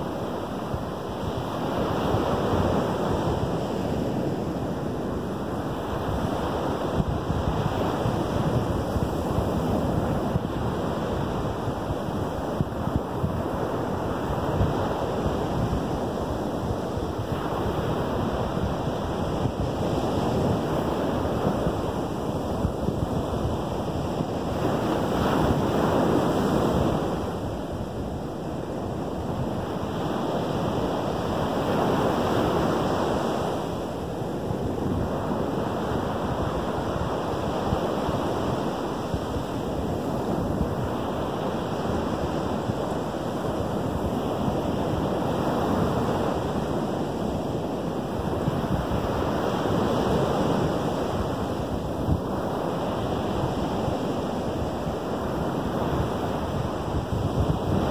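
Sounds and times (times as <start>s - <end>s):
surf washing onto sandy beach: 0.0s - 57.9s.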